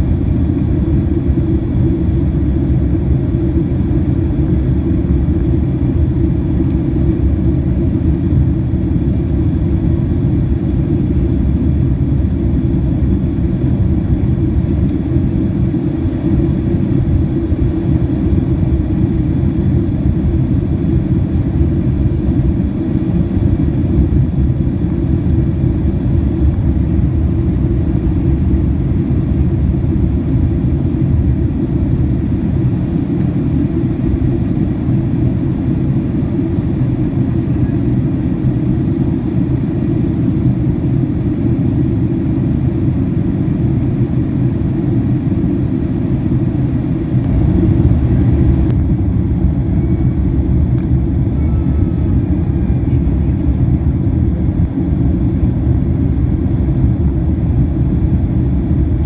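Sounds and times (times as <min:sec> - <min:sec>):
airplane engines rumbling in cabin: 0:00.0 - 0:59.0.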